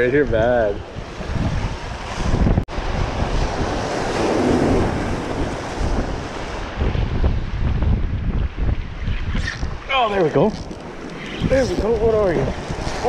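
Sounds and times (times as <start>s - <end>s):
wind buffeting microphone: 0.0s - 13.0s
surf breaking against rocks: 1.2s - 8.0s, 9.4s - 13.0s.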